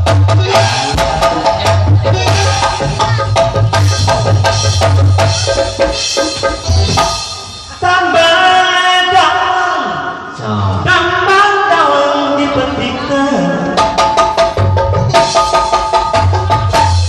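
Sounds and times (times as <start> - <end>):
deep bass: 0.0 - 7.7
fast hand-drum beat: 0.0 - 7.8, 13.8 - 17.0
live band music: 0.0 - 17.0.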